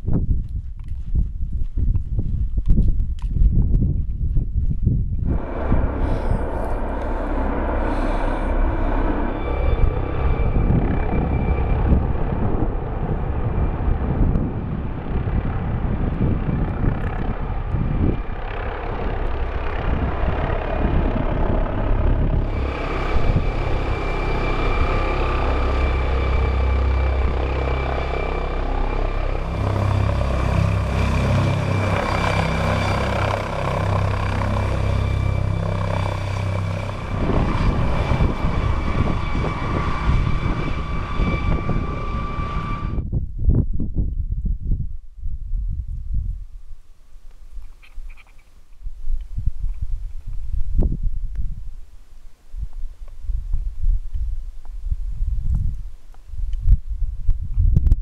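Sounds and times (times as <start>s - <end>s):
helicopter turbine whine: 4.9s - 44.0s
helicopter rotor chop: 5.2s - 43.1s.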